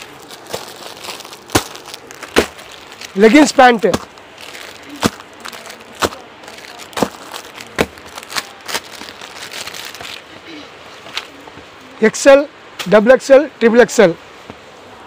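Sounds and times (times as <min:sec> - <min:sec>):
plastic crinkling: 0:00.0 - 0:10.4.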